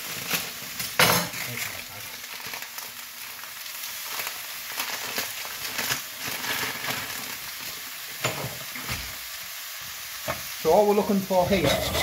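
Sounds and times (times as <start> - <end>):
dry rice pattering onto pan: 0.0 - 9.2
vegetables sizzling in a frying pan: 0.0 - 12.0.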